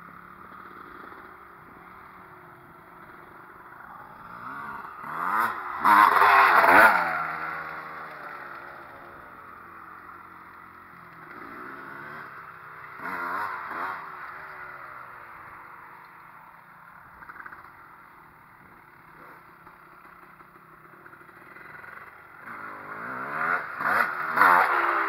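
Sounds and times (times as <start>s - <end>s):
dirt bike engines revving: 0.0s - 25.0s.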